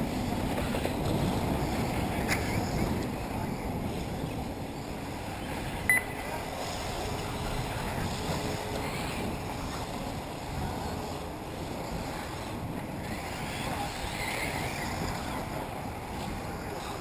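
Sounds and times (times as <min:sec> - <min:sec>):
wind rumble on microphone: 0:00.0 - 0:17.0
short high-pitched beep: 0:05.9 - 0:06.2.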